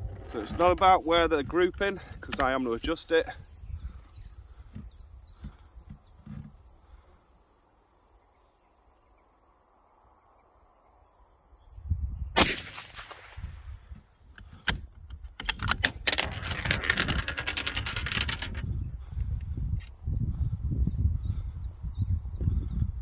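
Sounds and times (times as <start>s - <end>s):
rifle shot with echo: 12.4s - 13.8s
rifle bolt clicks and rattles: 14.3s - 18.7s.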